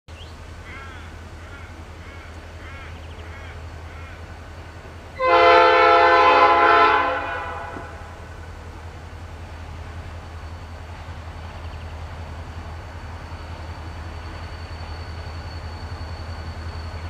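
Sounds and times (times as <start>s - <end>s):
train horn blast: 5.2s - 8.3s.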